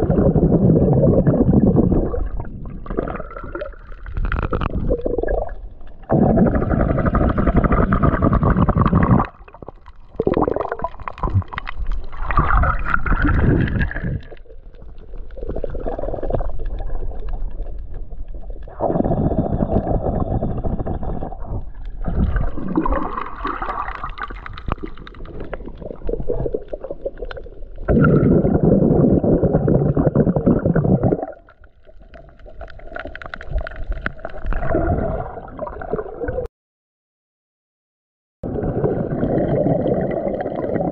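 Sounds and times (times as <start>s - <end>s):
low underwater rumble: 0.0s - 36.5s
water gurgling underwater: 0.0s - 36.5s, 38.4s - 40.9s.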